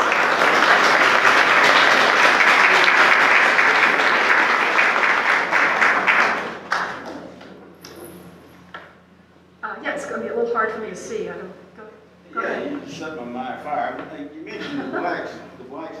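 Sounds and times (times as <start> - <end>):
audience applauding: 0.0 - 7.5.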